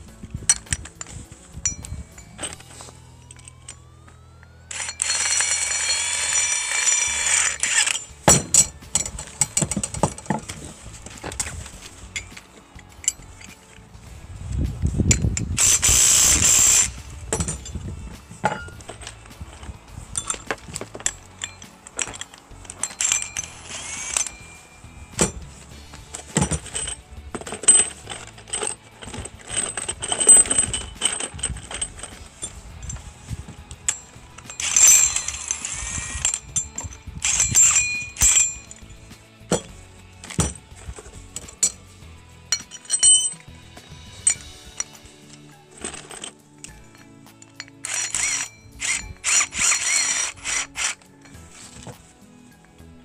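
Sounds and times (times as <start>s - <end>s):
steel parts and nuts clinking: 0.0s - 53.0s
impact wrench bursts: 4.7s - 10.6s, 15.1s - 17.8s, 18.5s - 25.4s, 33.7s - 38.8s, 47.6s - 51.9s.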